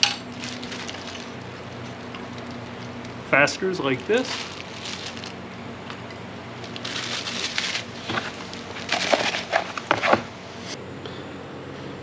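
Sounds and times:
cardboard packaging rustling: 0.0s - 5.4s, 6.6s - 10.3s
sharp crackles: 3.8s - 6.0s.

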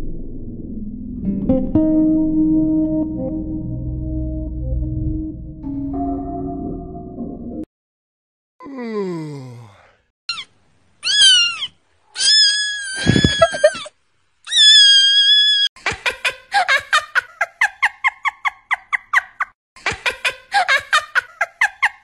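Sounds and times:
rapid squeaky cries: 10.3s - 13.9s, 14.5s - 15.7s
short high cry: 10.3s - 13.9s
kitten screaming: 11.0s - 13.9s, 14.5s - 15.7s.

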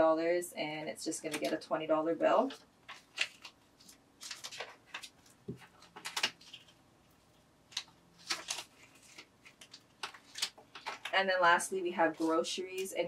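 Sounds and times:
plastic crinkling: 2.3s - 11.2s.

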